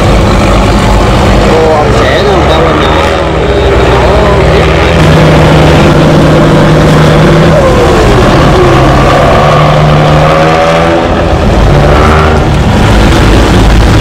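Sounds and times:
heavy boat diesel engines droning: 0:00.0 - 0:14.0.

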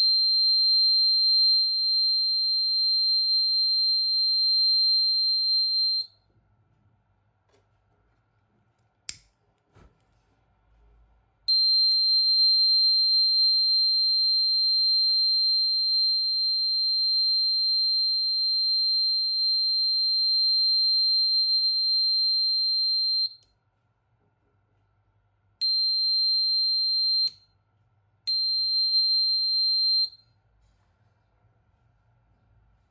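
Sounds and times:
high-pitched buzzer tone: 0:11.5 - 0:23.4.

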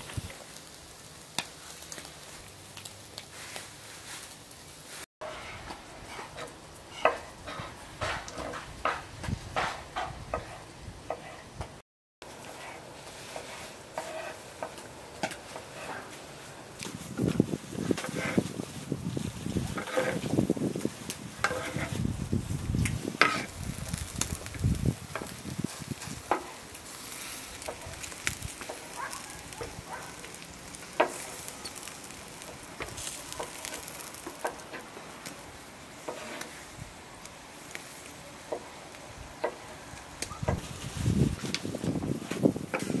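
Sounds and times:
charcoal pops and crackles: 0:00.0 - 0:05.0, 0:13.1 - 0:43.0
meat sizzling over charcoal: 0:00.0 - 0:43.0
knife scraping cutting board: 0:12.6 - 0:14.4, 0:18.0 - 0:18.4, 0:19.7 - 0:20.3, 0:21.4 - 0:22.0, 0:23.2 - 0:23.5, 0:36.0 - 0:36.5.

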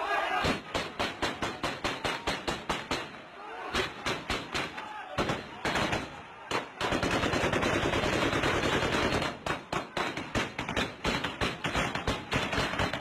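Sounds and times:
gunshots: 0:00.3 - 0:13.0
automatic gunfire: 0:04.1 - 0:13.0.

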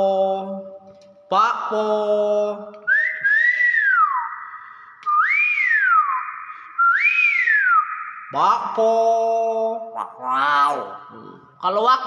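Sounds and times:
myna bird whistling: 0:02.9 - 0:08.8.

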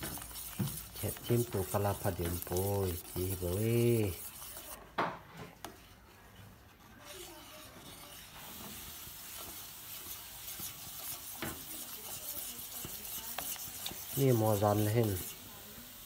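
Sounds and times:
spoon stirring and scraping pot: 0:00.0 - 0:16.0.

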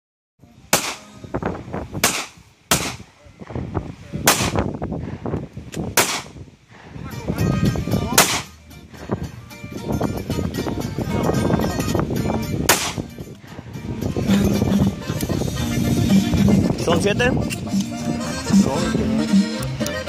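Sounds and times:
pistol shots: 0:00.7 - 0:01.1, 0:02.0 - 0:03.0, 0:04.2 - 0:04.7, 0:05.9 - 0:06.4, 0:08.2 - 0:08.5, 0:12.7 - 0:13.1.

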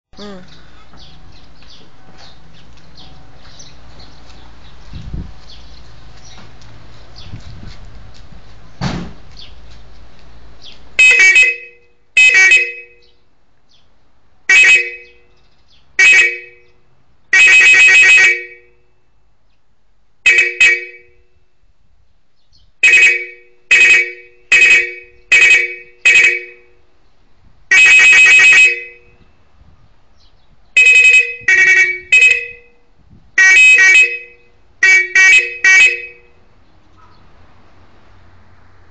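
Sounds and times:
two-tone car horn blasts: 0:11.0 - 0:13.2, 0:14.5 - 0:15.2, 0:16.0 - 0:18.9, 0:20.3 - 0:21.3, 0:22.8 - 0:26.8, 0:27.7 - 0:29.2, 0:30.8 - 0:32.8, 0:33.4 - 0:36.4.

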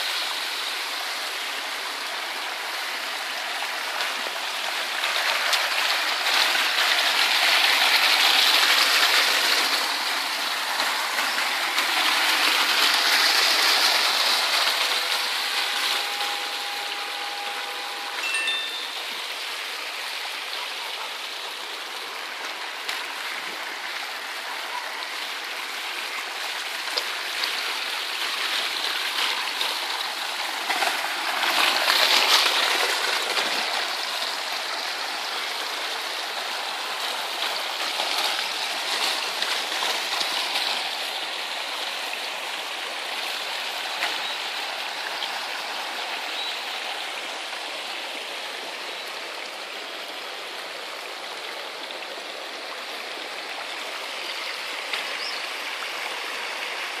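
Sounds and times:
rainwater streaming and gurgling: 0:00.0 - 0:57.0.

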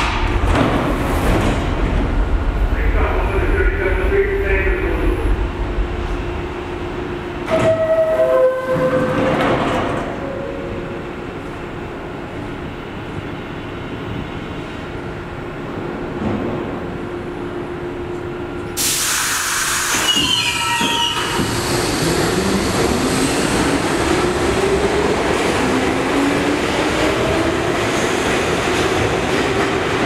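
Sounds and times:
stopped train humming: 0:00.0 - 0:30.0
train doors sliding shut: 0:07.4 - 0:10.5, 0:18.8 - 0:23.5
train pulling out: 0:18.6 - 0:27.7.

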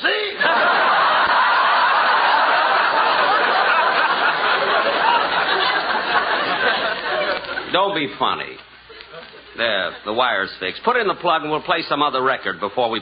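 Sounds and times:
studio audience laughing: 0:00.3 - 0:07.7.

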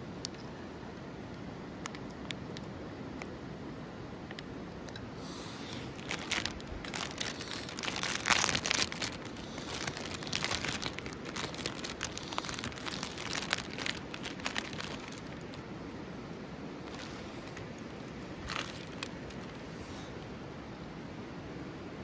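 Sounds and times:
plastic wrapper crinkling and tearing: 0:05.8 - 0:15.6, 0:16.8 - 0:19.6.

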